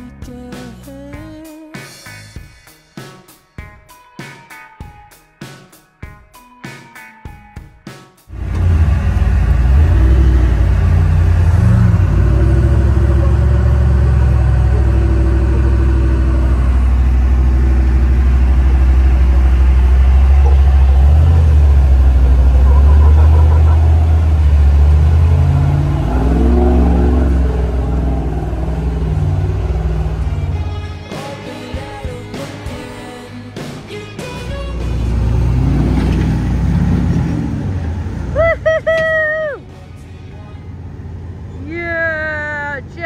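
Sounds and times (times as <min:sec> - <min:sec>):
engine rumbling at low revs: 0:08.3 - 0:31.0, 0:34.6 - 0:39.2.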